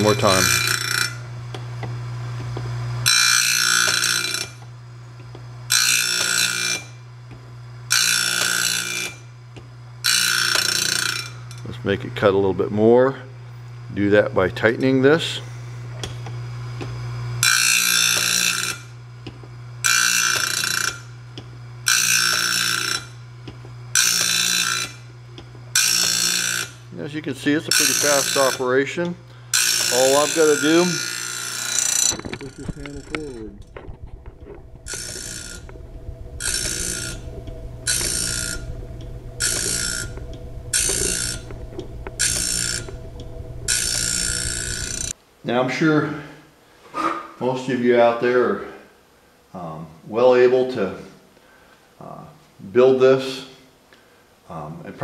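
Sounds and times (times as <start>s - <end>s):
grinding wheel on blade: 0.0s - 1.4s, 2.5s - 4.7s, 5.7s - 7.1s, 7.9s - 9.4s, 10.0s - 11.7s, 17.4s - 19.0s, 19.8s - 21.2s, 21.8s - 45.2s
grinder motor humming: 0.0s - 11.6s, 16.0s - 45.2s.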